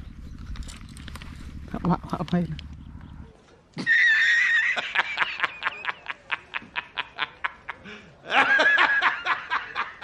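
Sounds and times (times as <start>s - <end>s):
man laughing hysterically: 3.8s - 10.0s.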